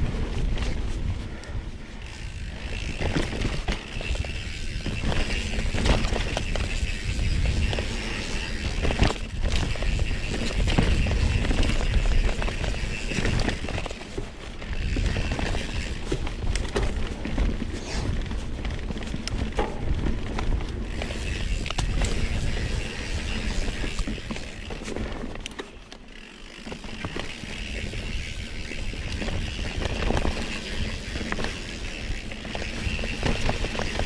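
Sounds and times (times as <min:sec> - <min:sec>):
wind rumble on microphone: 0:00.0 - 0:14.0, 0:14.6 - 0:25.2
bike chain and frame rattling: 0:00.0 - 0:34.0
bike tyre noise: 0:00.0 - 0:34.0.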